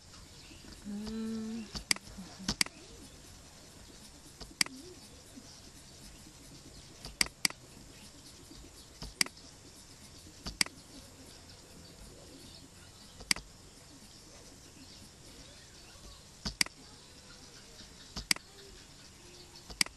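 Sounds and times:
faint background hiss: 0:00.0 - 0:19.9
mouse button clicking: 0:07.1 - 0:07.6, 0:09.0 - 0:09.4, 0:10.5 - 0:10.8, 0:13.2 - 0:13.5, 0:16.4 - 0:16.8, 0:18.2 - 0:18.5, 0:19.7 - 0:19.9.

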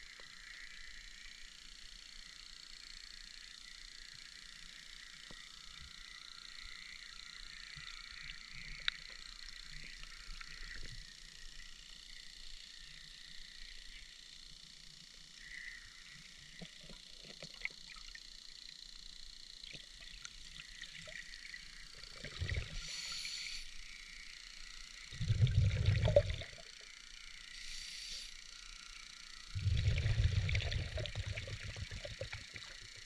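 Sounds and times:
exhaled bubbles rumbling: 0:20.0 - 0:22.8, 0:25.1 - 0:26.9, 0:29.5 - 0:33.0
regulator inhaling hiss: 0:22.6 - 0:24.0, 0:27.4 - 0:28.7.

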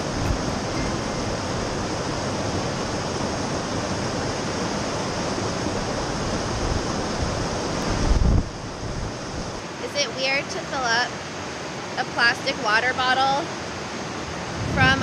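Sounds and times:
wind buffeting microphone: 0:00.0 - 0:10.0, 0:13.6 - 0:15.0
river rushing over rocks: 0:00.0 - 0:15.0.

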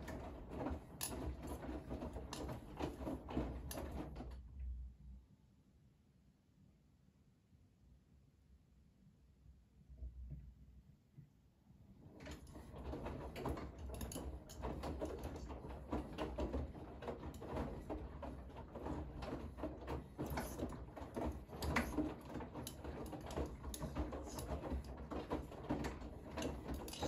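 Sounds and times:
washing machine motor hum: 0:00.0 - 0:04.6, 0:12.0 - 0:27.0.

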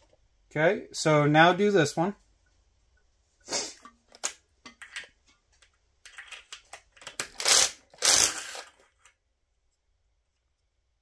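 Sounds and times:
socket rattling and chattering: 0:03.8 - 0:05.2, 0:06.0 - 0:09.1
cordless drill spinning: 0:07.1 - 0:08.9.

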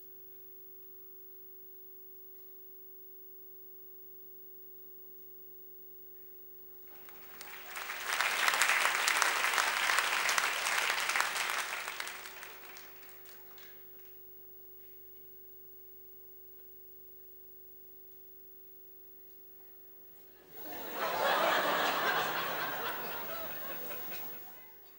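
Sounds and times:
faint steady hum: 0:00.0 - 0:24.9
audience applause: 0:06.9 - 0:13.7, 0:20.4 - 0:24.6.

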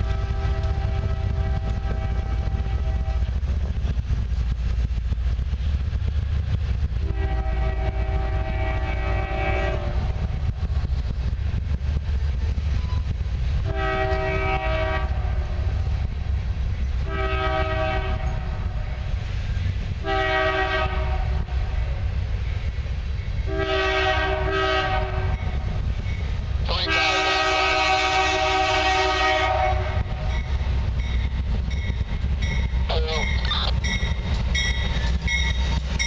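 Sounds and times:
locomotive air horn blasts: 0:00.0 - 0:03.4, 0:07.0 - 0:10.4, 0:13.6 - 0:15.7, 0:17.0 - 0:19.0, 0:20.0 - 0:22.0, 0:23.4 - 0:25.6, 0:26.8 - 0:30.4
train rumble and wheel clatter: 0:00.0 - 0:36.0.

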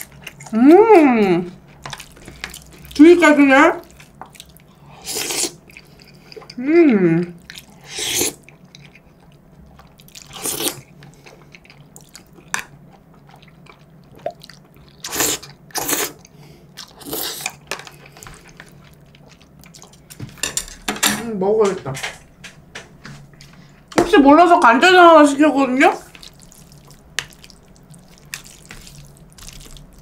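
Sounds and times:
chewing: 0:01.7 - 0:03.0, 0:03.8 - 0:06.6, 0:07.4 - 0:20.2, 0:26.0 - 0:30.0
noodles being slurped: 0:26.0 - 0:30.0.

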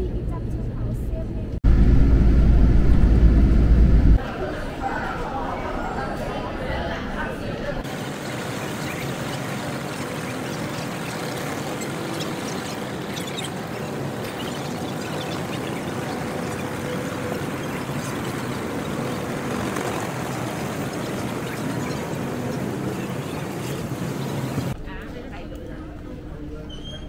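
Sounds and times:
distant road traffic: 0:07.8 - 0:24.8.

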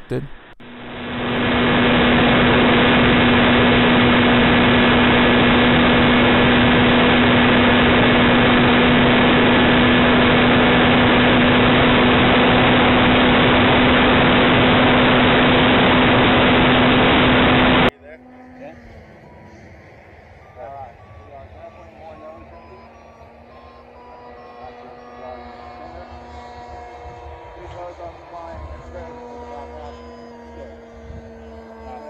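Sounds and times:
airflow rush: 0:00.6 - 0:17.9
model aircraft motor drone: 0:00.6 - 0:32.0.

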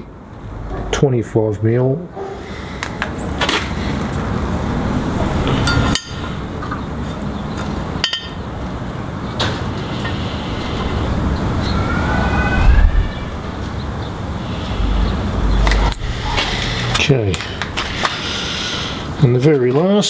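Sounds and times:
background rumble: 0:10.4 - 0:18.1.

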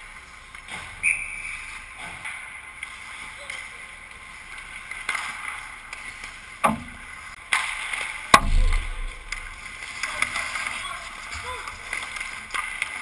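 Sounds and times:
hockey sticks and puck knocking: 0:05.1 - 0:09.8
low thud: 0:08.3 - 0:09.6.

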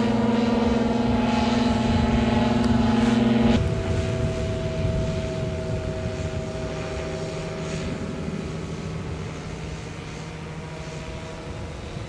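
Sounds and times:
model plane engine drone: 0:00.0 - 0:12.0.

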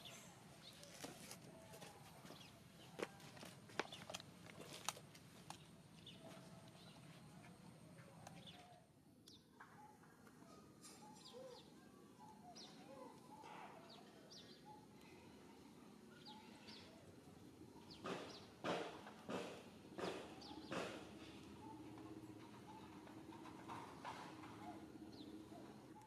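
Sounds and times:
faint outdoor ambience: 0:00.0 - 0:26.0
soft wavering bird calls: 0:06.0 - 0:18.5, 0:20.3 - 0:26.0.

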